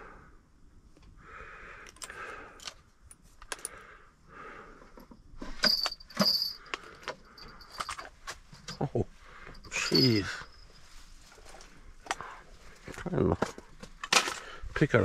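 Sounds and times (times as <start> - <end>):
heavy breathing: 1.1 - 2.9, 3.5 - 5.1, 6.0 - 8.2, 9.1 - 14.8
ringing metallic clinks: 5.6 - 9.0, 9.6 - 10.8
metal lures clinking: 5.6 - 10.8.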